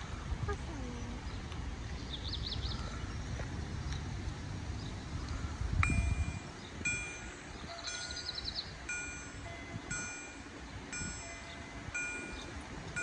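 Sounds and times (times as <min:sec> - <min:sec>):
bird chirping: 0:01.3 - 0:04.1, 0:06.3 - 0:09.6, 0:10.2 - 0:13.0
level-crossing warning bell: 0:05.8 - 0:13.0.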